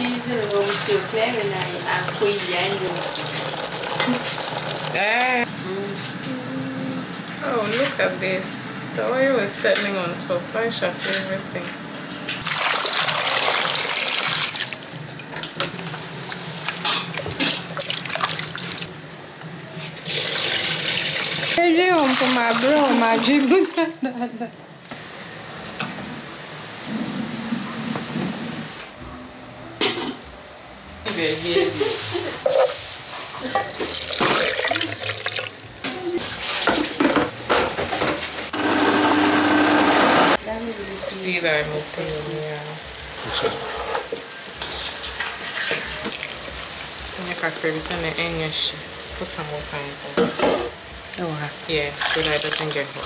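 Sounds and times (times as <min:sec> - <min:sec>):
water running from a tap: 0:00.1 - 0:05.4, 0:12.4 - 0:14.8, 0:17.1 - 0:18.9, 0:20.0 - 0:23.9, 0:33.6 - 0:35.8, 0:45.9 - 0:48.2, 0:51.1 - 0:53.0
tap water running into sink: 0:33.7 - 0:35.6.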